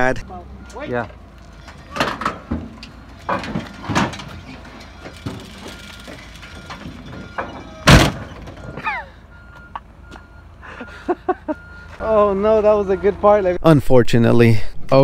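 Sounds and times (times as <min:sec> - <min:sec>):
reversing beeper: 0:00.0 - 0:01.1, 0:03.7 - 0:13.6
metal knocks and clanks: 0:01.6 - 0:08.8
loud bang of car landing: 0:07.8 - 0:08.6.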